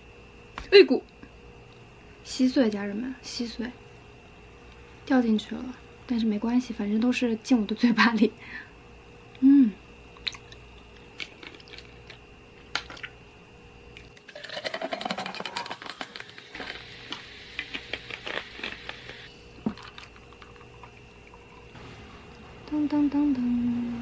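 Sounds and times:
crackling bubbles: 10.2s - 13.2s, 14.0s - 21.8s
drink pouring into glass: 14.3s - 21.8s.

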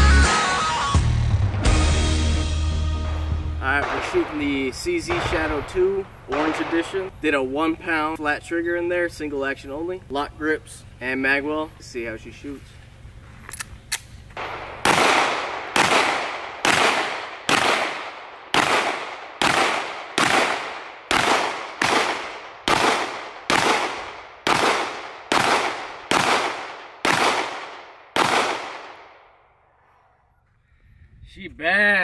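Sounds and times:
pistol shots: 3.8s - 7.1s, 14.4s - 29.3s.

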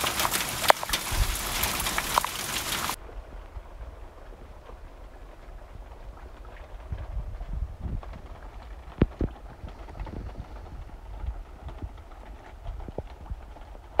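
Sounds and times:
microphone handling noise: 9.0s - 12.0s.

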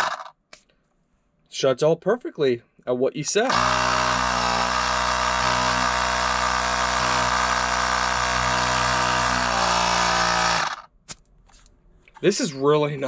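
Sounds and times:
electric air compressor running: 0.0s - 0.3s, 3.5s - 10.9s.

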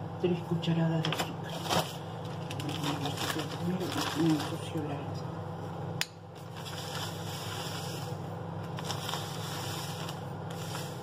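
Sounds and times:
steady low hum: 0.0s - 11.0s
sugar bag rustling: 1.4s - 5.1s, 6.4s - 11.0s.

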